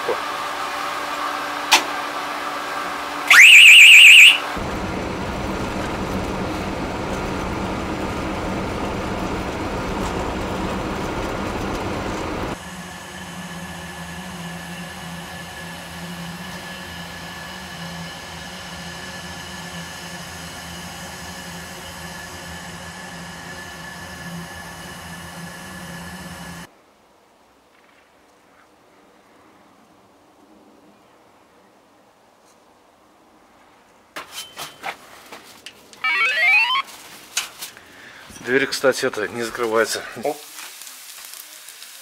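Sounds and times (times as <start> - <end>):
fire alarm high-pitched tone: 3.3 - 4.5, 36.0 - 36.8
car cabin engine and road noise: 4.5 - 12.6.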